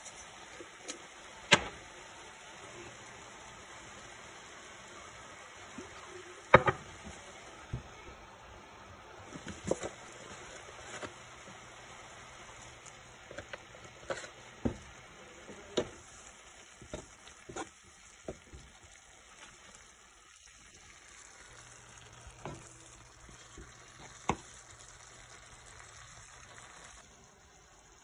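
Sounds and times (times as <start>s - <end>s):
vegetables sizzling in frying pan: 0.0s - 28.0s
spatula knocking and scraping pan: 16.8s - 18.7s.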